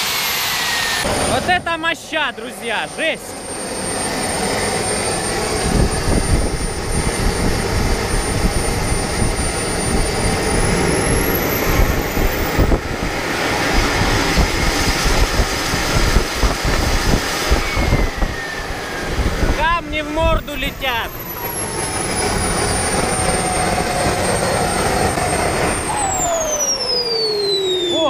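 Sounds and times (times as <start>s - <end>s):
jet engine rushing and whining: 0.0s - 28.0s.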